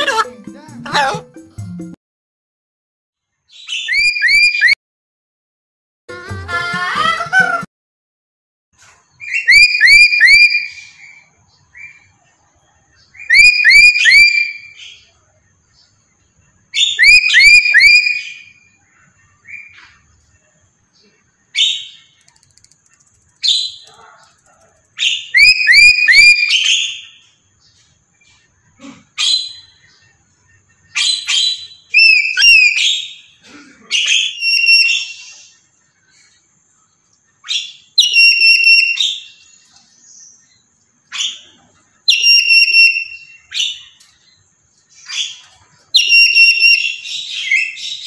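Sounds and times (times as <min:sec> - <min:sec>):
parrot whistled calls: 0:03.6 - 0:04.8, 0:09.2 - 0:11.2, 0:13.2 - 0:14.8, 0:16.8 - 0:18.6, 0:25.0 - 0:27.1, 0:31.0 - 0:33.3, 0:34.0 - 0:35.5, 0:37.4 - 0:39.5, 0:42.1 - 0:43.9, 0:46.0 - 0:48.0.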